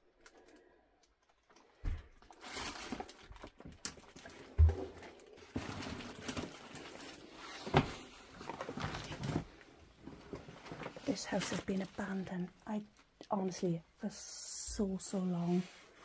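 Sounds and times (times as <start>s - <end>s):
papers rustling: 1.4s - 13.1s.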